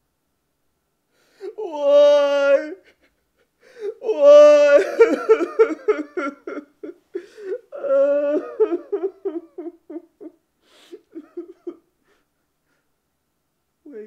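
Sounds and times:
man sobbing and wailing: 0:01.3 - 0:12.3.

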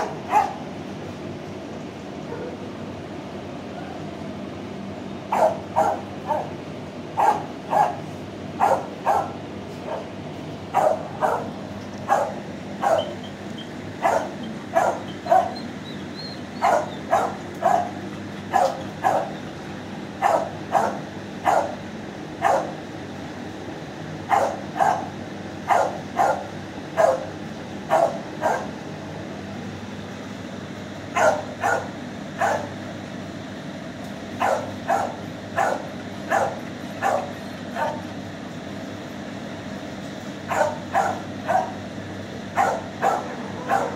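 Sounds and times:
dog barking: 0:00.0 - 0:00.6, 0:02.3 - 0:02.6, 0:05.3 - 0:06.6, 0:07.2 - 0:08.0, 0:08.6 - 0:10.1, 0:10.7 - 0:13.2, 0:14.0 - 0:15.6, 0:16.6 - 0:19.4, 0:20.2 - 0:21.8, 0:22.4 - 0:22.8, 0:24.3 - 0:27.3, 0:27.9 - 0:28.8, 0:31.2 - 0:32.8, 0:34.4 - 0:38.1, 0:40.5 - 0:41.8, 0:42.6 - 0:43.9
steady low hum: 0:00.0 - 0:43.9.

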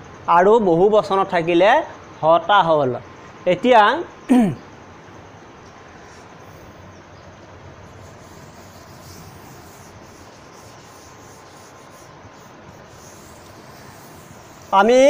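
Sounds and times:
steady background hiss: 0:00.0 - 0:15.0
duster rubbing chalkboard: 0:07.9 - 0:15.0.

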